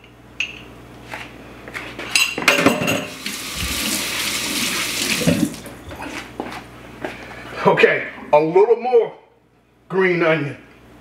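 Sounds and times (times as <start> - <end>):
dishes and utensils clinking: 2.1 - 3.2
kitchen tap running: 3.0 - 5.8.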